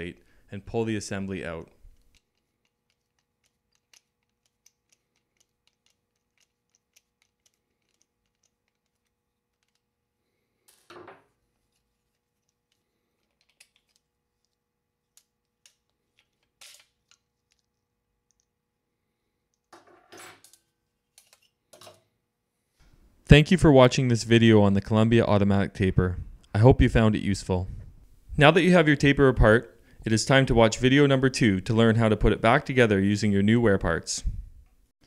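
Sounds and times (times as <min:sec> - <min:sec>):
screwdriver working a screw: 0:01.8 - 0:09.9.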